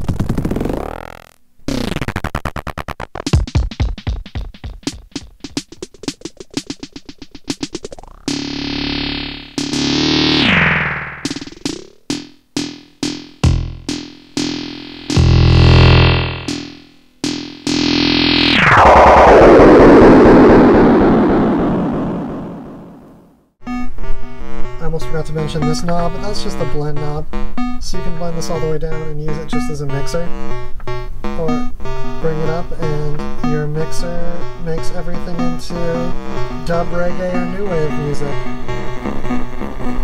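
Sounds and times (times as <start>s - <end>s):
synth through fuzzy dub delay: 7.8s - 23.8s, 31.4s - 40.0s
sweeping flanger-like sound: 17.7s - 23.2s.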